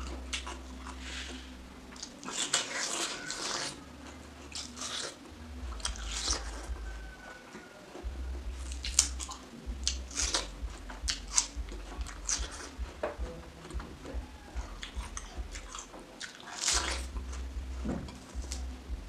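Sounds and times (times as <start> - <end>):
chewing: 0.0 - 19.0
crisp watermelon bites: 2.0 - 3.8, 8.0 - 18.7.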